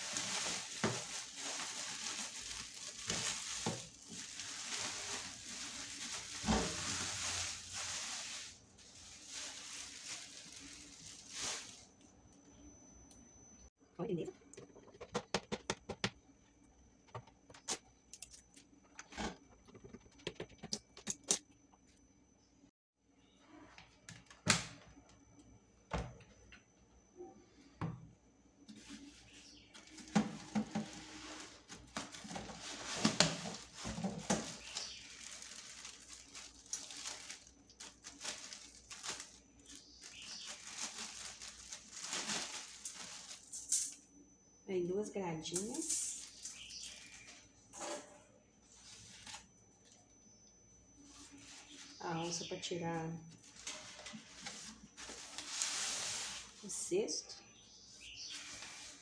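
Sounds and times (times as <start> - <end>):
plastic bags crinkling: 0.0 - 11.9, 29.8 - 43.9.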